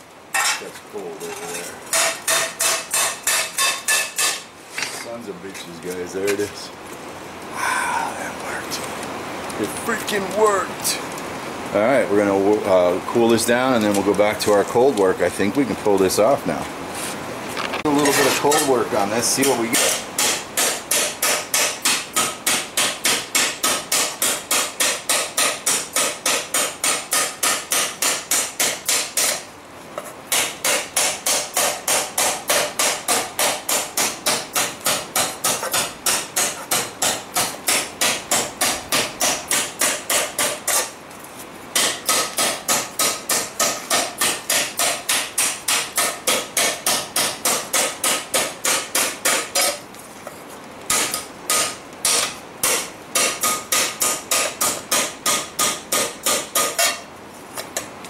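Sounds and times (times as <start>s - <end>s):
hammer beating steel pan: 1.5s - 4.4s, 50.9s - 57.0s.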